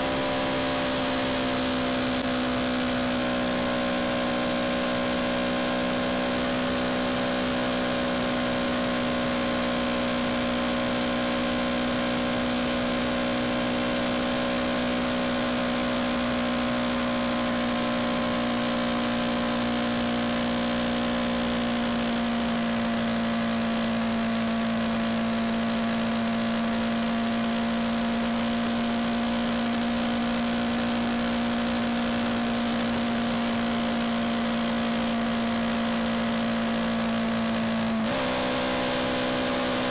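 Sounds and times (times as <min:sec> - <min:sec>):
motorcycle engine cruising: 0:00.0 - 0:39.9.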